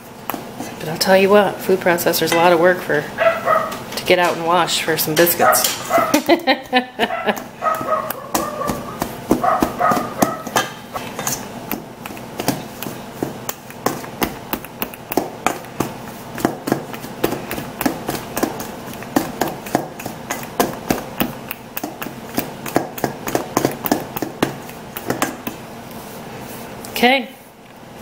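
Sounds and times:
pastry blender scraping metal bowl: 7.2 - 25.7.

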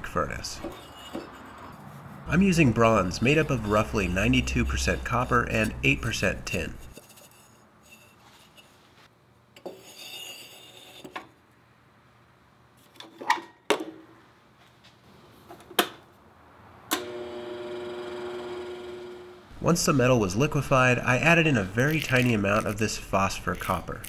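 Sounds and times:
crucible parts scraping and knocking: 0.6 - 8.8
electric furnace humming: 17.0 - 19.7.

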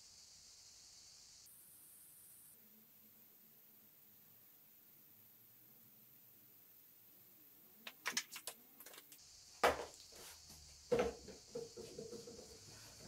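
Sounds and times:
items knocking on a shelf: 9.6 - 10.0, 10.8 - 13.0.

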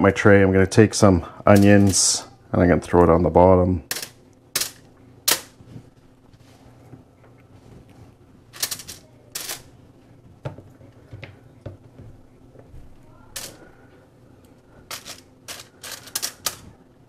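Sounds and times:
aluminium foil tray crinkling: 14.8 - 16.8.

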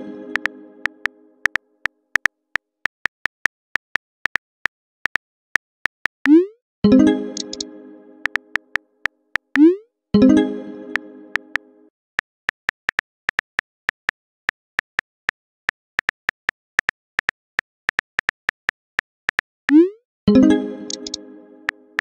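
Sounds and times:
phone keyboard clicks: 7.4 - 7.6, 20.9 - 21.2.

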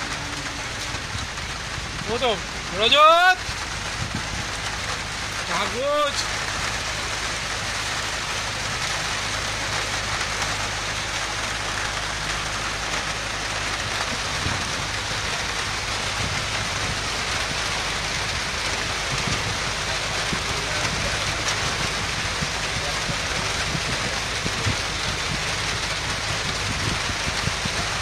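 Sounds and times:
rain hissing: 0.0 - 28.0.

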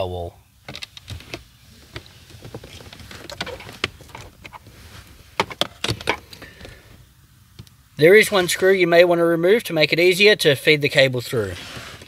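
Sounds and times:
rustling handling noise: 0.7 - 7.0.

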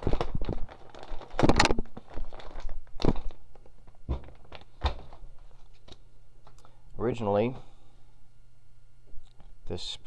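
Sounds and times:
plastic bag crinkling: 0.0 - 6.7.

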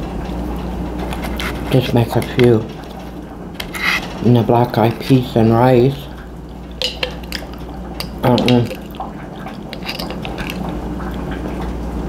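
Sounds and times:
knife scraping in a jar: 3.6 - 4.1, 6.8 - 10.6.

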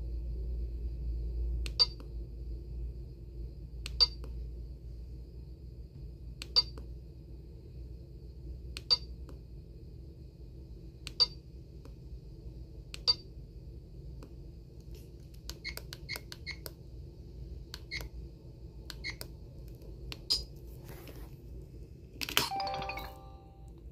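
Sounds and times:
phone keypad beeps: 22.5 - 23.6.

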